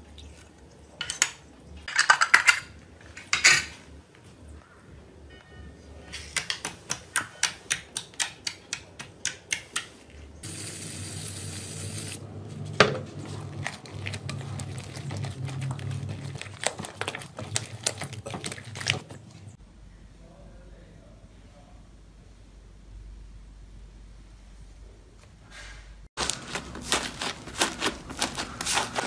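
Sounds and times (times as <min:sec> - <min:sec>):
slime crackling and squelching: 0:26.2 - 0:29.0.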